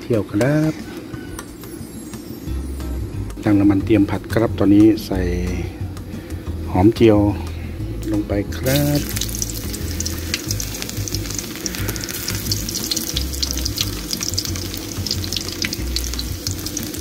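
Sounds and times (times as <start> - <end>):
shallots sizzling in hot oil: 8.5 - 17.0.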